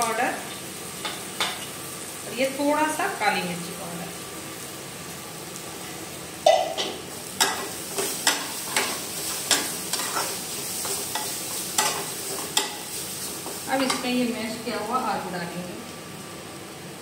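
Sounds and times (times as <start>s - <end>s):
food sizzling: 0.0s - 17.0s
metal spatula scraping a wok: 7.4s - 12.8s.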